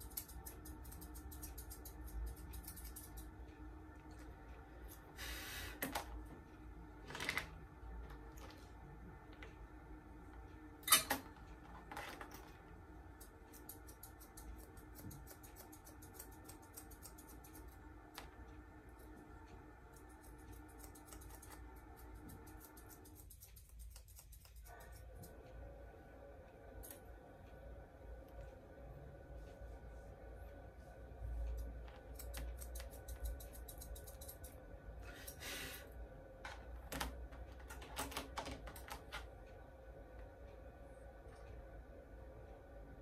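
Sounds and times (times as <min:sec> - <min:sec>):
scissors snipping fur: 0:00.0 - 0:03.4, 0:13.2 - 0:18.2, 0:19.9 - 0:25.3, 0:31.6 - 0:34.6
room hum: 0:00.0 - 0:43.0.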